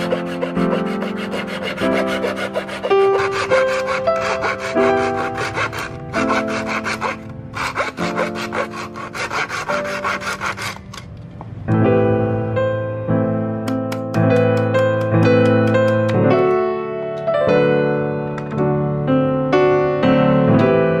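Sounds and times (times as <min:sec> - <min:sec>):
hand saw cutting bamboo: 0:00.0 - 0:11.0
background piano music: 0:00.0 - 0:21.0.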